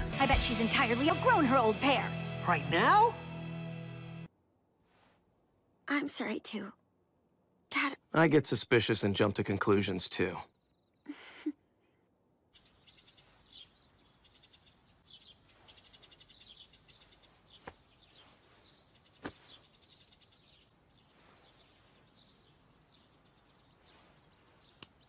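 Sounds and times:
bird chirps and trills: 12.4s - 25.0s
soft clicks: 24.8s - 25.0s.

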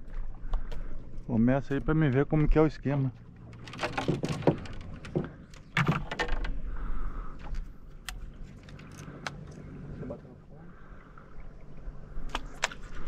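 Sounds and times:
low steady hum: 0.0s - 13.0s
fishing gear clicking and knocking: 3.2s - 6.6s.

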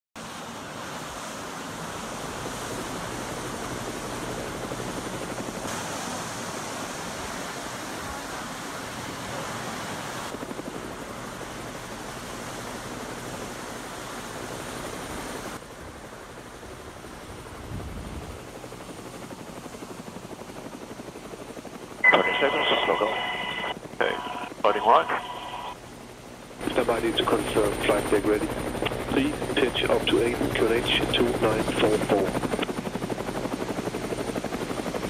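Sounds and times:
rushing sea: 0.2s - 15.6s
helicopter rotor and engine: 0.2s - 35.0s
wind: 0.2s - 35.0s
low hum: 22.0s - 25.8s.

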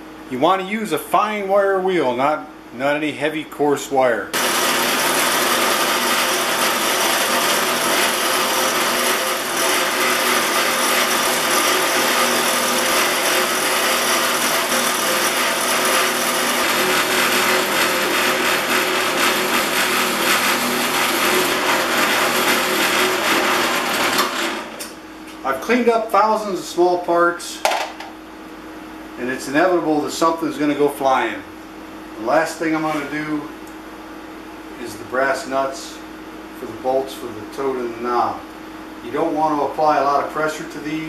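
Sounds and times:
wire wheel scratching metal: 4.4s - 24.6s
bench grinder motor hum: 4.4s - 24.9s.

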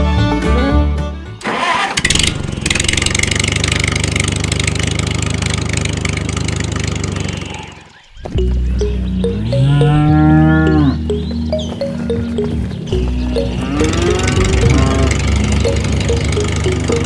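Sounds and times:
tractor engine chugging: 1.5s - 7.8s, 12.0s - 17.0s.

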